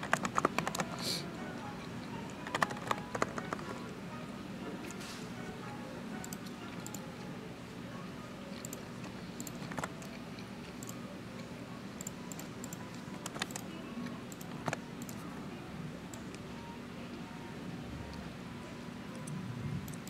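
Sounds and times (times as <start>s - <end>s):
keyboard key clicks: 12.0s - 13.6s.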